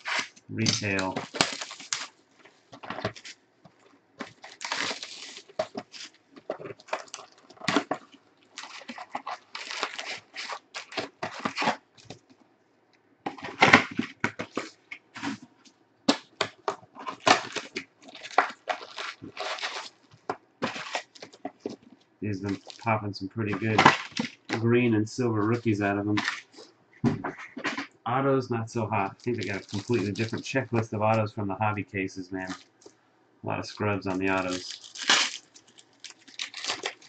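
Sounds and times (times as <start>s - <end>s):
cardboard box tearing: 0.0s - 2.2s, 4.2s - 8.0s, 8.6s - 11.8s, 16.1s - 20.0s, 20.6s - 21.8s, 34.3s - 35.5s, 36.2s - 37.0s
foil packs rustling: 0.0s - 12.3s, 13.3s - 24.6s, 25.4s - 26.7s, 29.0s - 31.2s, 32.4s - 33.0s, 33.8s - 37.0s
plastic wrap crinkling: 0.0s - 12.4s, 13.3s - 24.6s, 25.4s - 27.9s, 29.0s - 31.2s, 32.4s - 33.0s, 33.8s - 37.0s.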